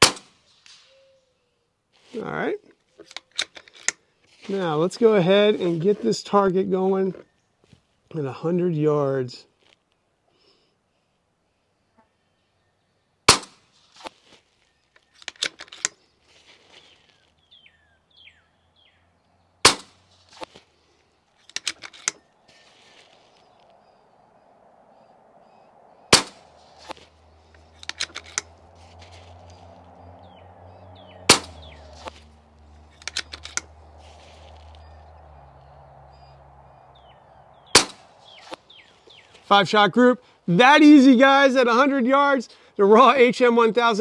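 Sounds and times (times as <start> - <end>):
suppressed air rifle shots: 0.0 - 0.9, 13.3 - 13.6, 19.6 - 20.0, 26.1 - 26.5, 31.3 - 32.1, 37.7 - 38.1
faint bird chirps: 0.5 - 1.7
metallic clicks of rifle action: 3.0 - 4.0, 15.0 - 16.0, 21.4 - 22.2, 27.8 - 28.6, 32.9 - 33.7.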